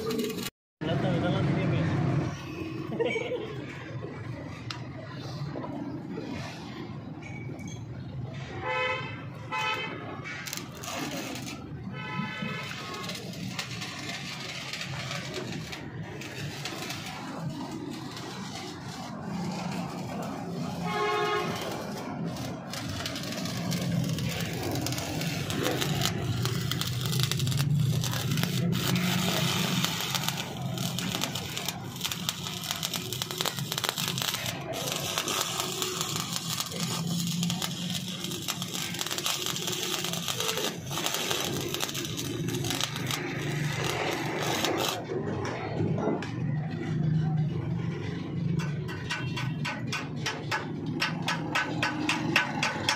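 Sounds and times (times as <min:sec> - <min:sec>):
welding arc crackling and sizzling: 0:00.0 - 0:00.5, 0:09.2 - 0:47.0.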